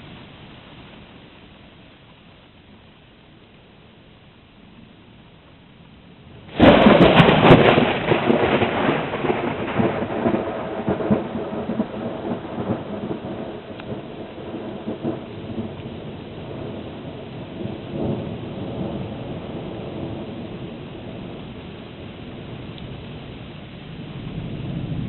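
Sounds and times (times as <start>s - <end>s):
thunder crack and rumble: 6.5s - 25.0s.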